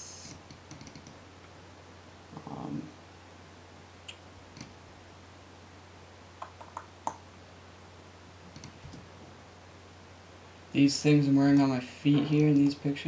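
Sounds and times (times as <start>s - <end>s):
low electrical hum: 0.0s - 13.0s
computer mouse clicks: 0.3s - 1.2s, 4.1s - 4.7s, 8.5s - 9.0s.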